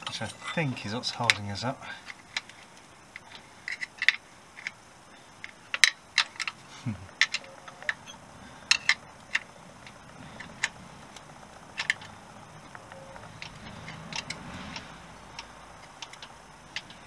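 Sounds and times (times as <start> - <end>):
metal clicks and taps: 12.7 - 17.0.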